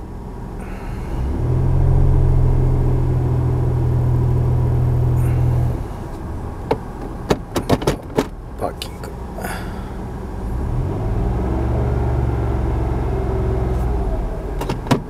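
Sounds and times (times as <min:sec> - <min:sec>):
loud steady low hum: 0:00.0 - 0:06.7
car engine idling: 0:00.0 - 0:10.9.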